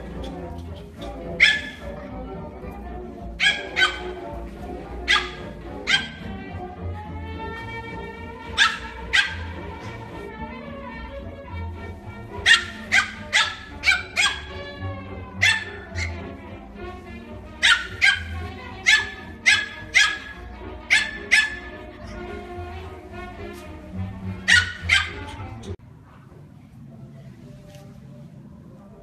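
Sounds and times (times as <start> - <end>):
background music: 0.0 - 25.8
small dog yapping: 1.4 - 1.9, 3.4 - 4.2, 5.0 - 6.2, 8.6 - 9.6, 12.4 - 14.7, 15.4 - 16.2, 17.6 - 21.7, 24.4 - 25.4.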